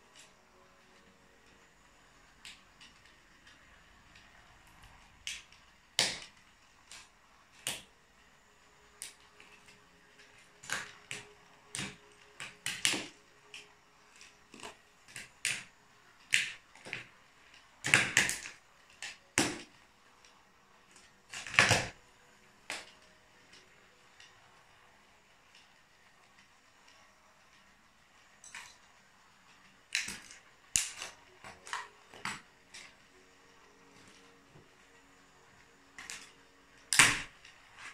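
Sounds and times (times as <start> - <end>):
plastic toy track cracking underfoot: 9.0 - 22.0, 29.5 - 32.9.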